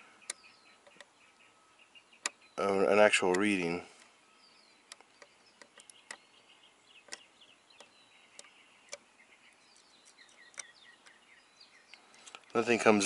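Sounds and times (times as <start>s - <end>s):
faint bird chirps: 0.0s - 13.0s
probe tips tapping metal pins: 4.8s - 6.3s.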